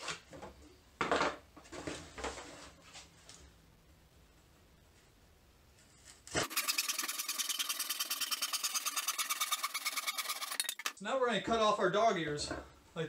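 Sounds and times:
handsaw cutting wood: 6.3 - 10.9.

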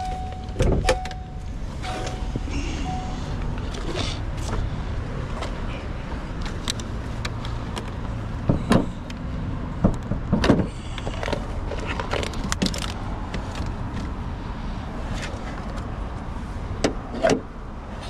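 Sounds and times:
clicks of handling van parts: 0.0 - 2.5, 6.4 - 9.2, 9.8 - 14.1, 16.8 - 17.5.

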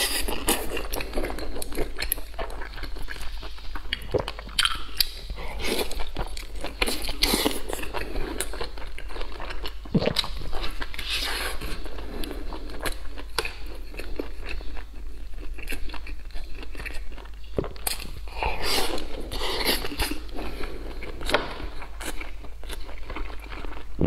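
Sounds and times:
person chewing wetly: 0.0 - 24.0
lip and tongue clicks: 1.6 - 7.6.

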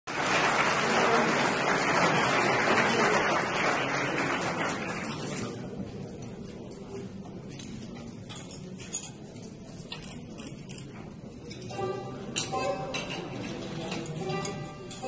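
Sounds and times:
audience applauding: 0.1 - 5.2.

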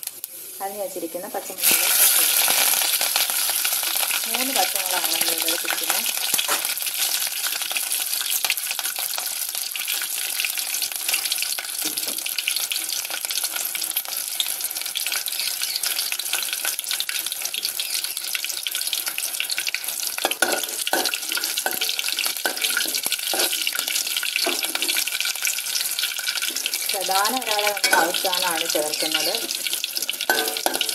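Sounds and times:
food sizzling in hot oil: 0.0 - 30.9
metal spoon knocking a pan: 20.2 - 23.6, 24.4 - 25.0, 27.6 - 29.5, 30.3 - 30.9.

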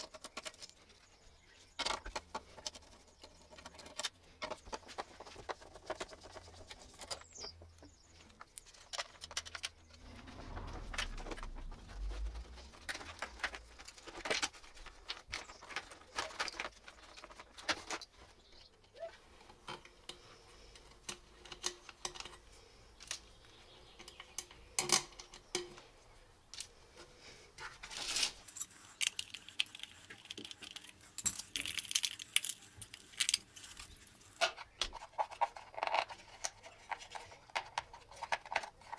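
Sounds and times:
plastic parts clicking and rustling: 0.0 - 10.0, 12.6 - 38.9
low rumble: 9.8 - 14.0.

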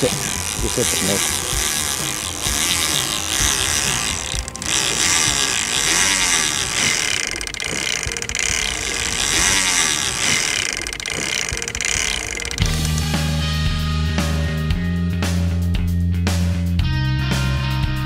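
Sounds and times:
fishing reel ratchet buzzing: 0.0 - 13.1.

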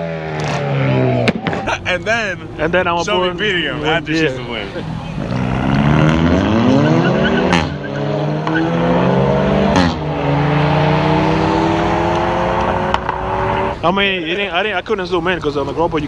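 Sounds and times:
car engine accelerating: 0.0 - 13.9
upshift crack: 0.3 - 2.2.

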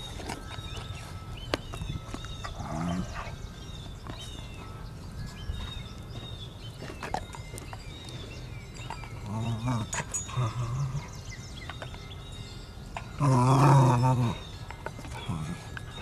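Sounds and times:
dog growling: 2.5 - 3.5, 9.0 - 11.3, 13.0 - 16.0.

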